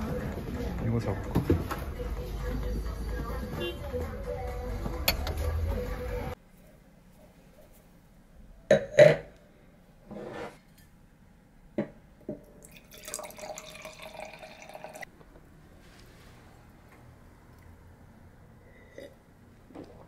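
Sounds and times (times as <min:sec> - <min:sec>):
wine pouring into a glass: 0:12.6 - 0:15.1.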